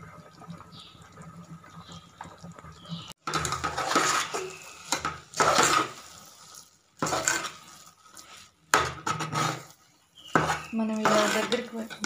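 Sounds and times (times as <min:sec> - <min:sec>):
ladle scraping metal pot: 0:03.2 - 0:12.0.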